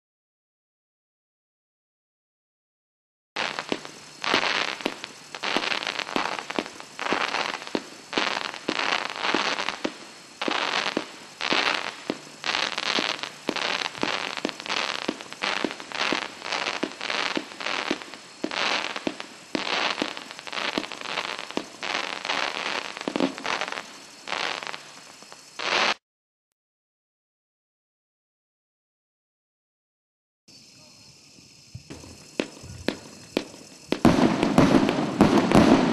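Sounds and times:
fireworks cake bangs: 3.4 - 26.0, 31.7 - 35.9
fireworks stars crackling: 3.4 - 26.0, 31.4 - 35.9.

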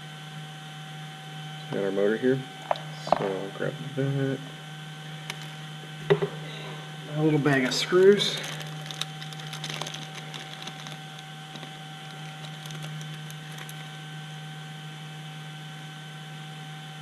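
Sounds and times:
low electrical hum: 0.0 - 17.0
plastic bag rustling and clicking: 8.0 - 13.9.

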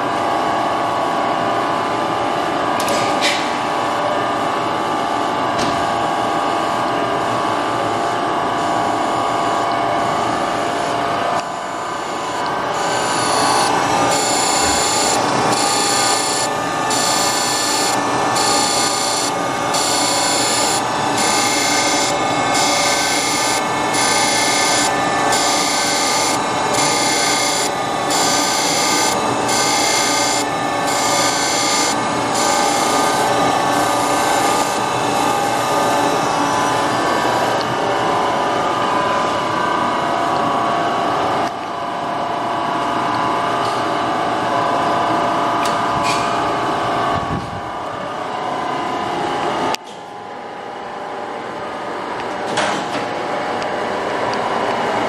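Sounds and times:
grinder motor hum: 6.6 - 41.6.

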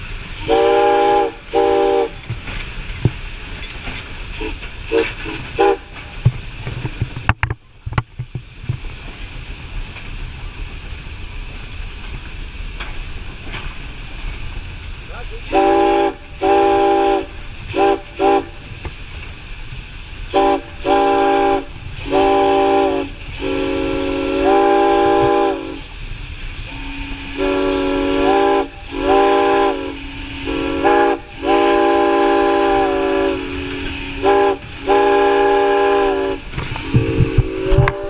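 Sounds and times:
running locomotive hiss and rumble: 0.0 - 38.0
steam locomotive whistle blasts: 0.3 - 2.3, 4.3 - 6.0, 15.4 - 18.7, 20.3 - 38.0.

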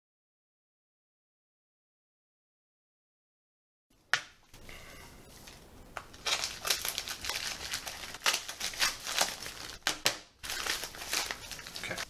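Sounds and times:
packaging crinkling: 5.4 - 12.0.

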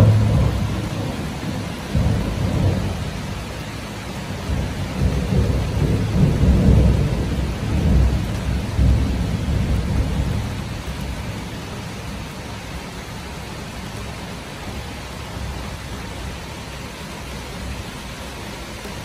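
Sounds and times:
thunder rumbling: 0.0 - 12.3
heavy rain: 0.0 - 19.0.

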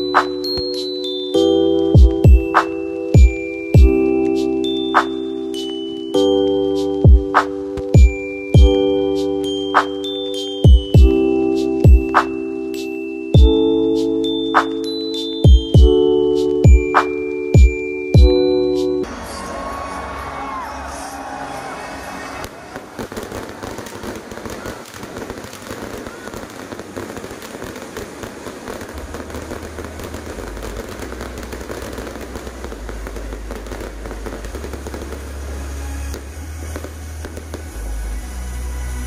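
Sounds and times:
fireworks crackling and popping: 0.0 - 19.4, 22.0 - 39.0
deep bass music: 2.0 - 5.2, 6.8 - 9.6, 10.7 - 12.5, 13.4 - 14.0, 15.5 - 16.1, 16.7 - 19.1, 32.3 - 39.0.

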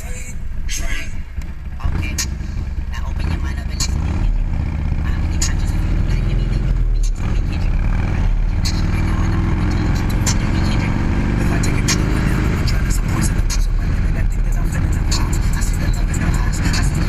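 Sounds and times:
motorcycle engine accelerating: 0.0 - 17.0.

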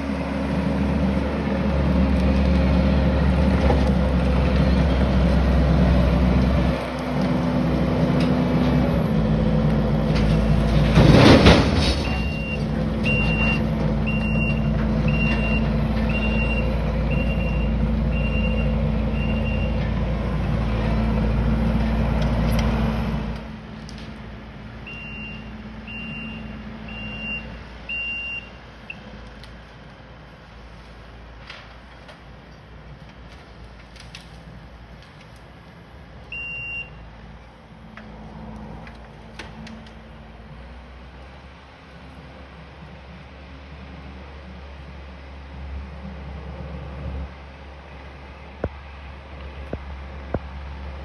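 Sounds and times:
diesel engine running: 0.0 - 51.0
backup alarm beeping: 36.3 - 37.0.

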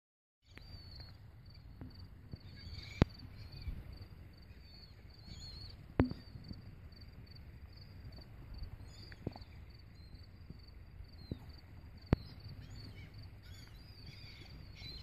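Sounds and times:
faint bird calls: 0.4 - 6.4, 11.1 - 15.0
insects trilling: 0.5 - 15.0.

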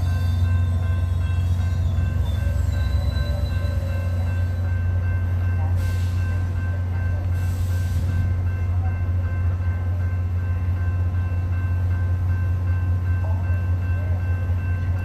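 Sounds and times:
diesel train engine idling: 0.0 - 15.0.

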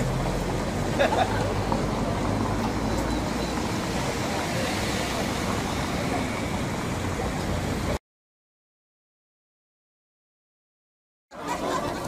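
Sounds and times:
murmur of passers-by: 0.0 - 8.0, 11.3 - 12.0.

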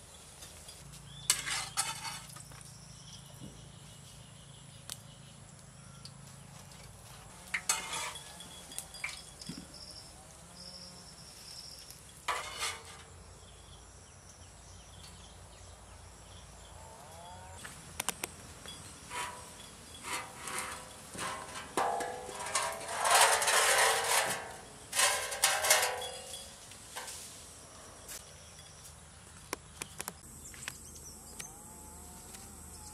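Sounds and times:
metal utensils scraping a pan: 1.2 - 2.5, 7.4 - 9.3, 12.3 - 13.2, 19.1 - 27.2.

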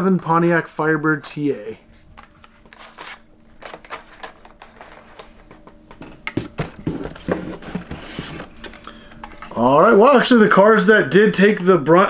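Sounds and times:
plastic blister packs rustling: 2.1 - 9.5.

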